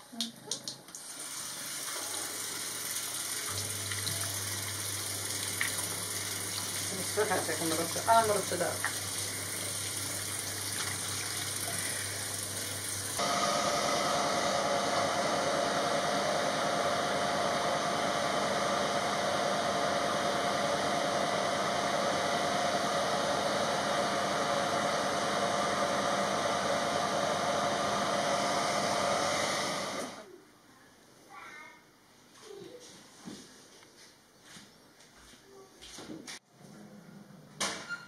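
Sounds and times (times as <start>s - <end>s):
tap water running into sink: 0.5s - 13.2s
hair dryer blowing: 5.3s - 30.3s.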